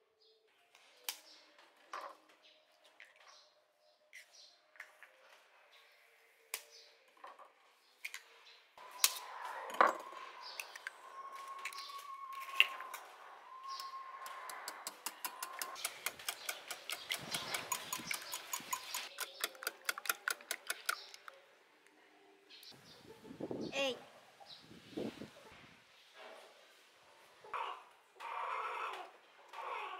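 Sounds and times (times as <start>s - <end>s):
whisk clicking against glass bowl: 14.9s - 21.2s.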